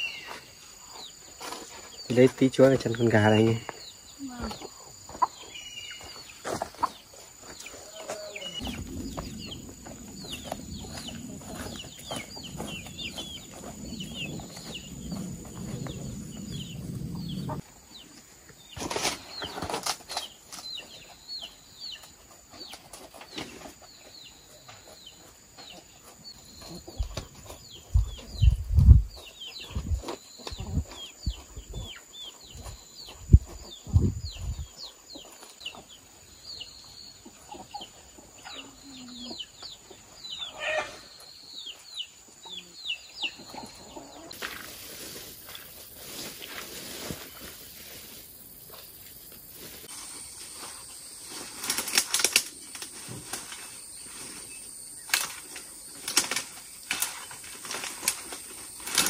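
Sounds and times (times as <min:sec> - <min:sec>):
chickens clucking and calling: 0:03.4 - 0:45.2
low rumble: 0:08.6 - 0:17.6.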